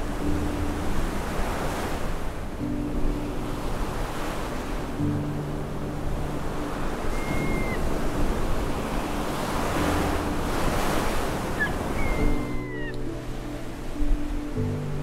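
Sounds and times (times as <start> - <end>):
wind on microphone: 0.0 - 15.0
gull calling: 6.9 - 9.7, 11.0 - 13.1.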